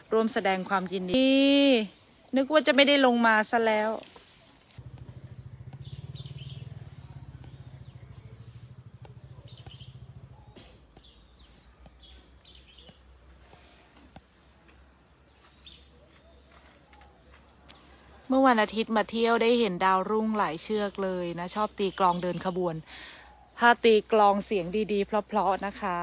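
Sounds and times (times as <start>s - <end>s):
birds chirping: 4.3s - 18.2s.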